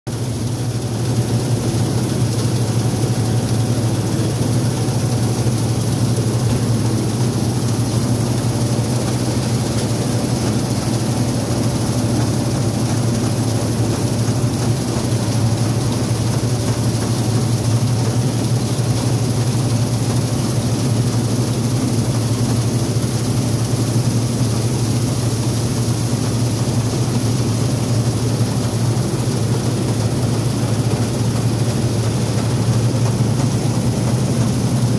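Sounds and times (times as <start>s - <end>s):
combine harvester droning: 0.2s - 18.2s.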